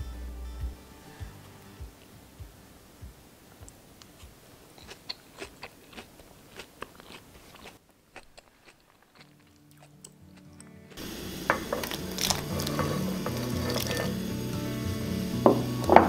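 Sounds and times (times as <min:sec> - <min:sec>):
fried tofu crunching: 0:04.1 - 0:14.3.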